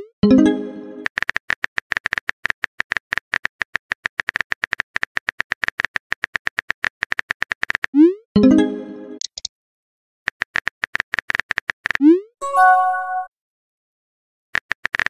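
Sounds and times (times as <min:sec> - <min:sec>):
keyboard clicks: 0:09.2 - 0:09.5.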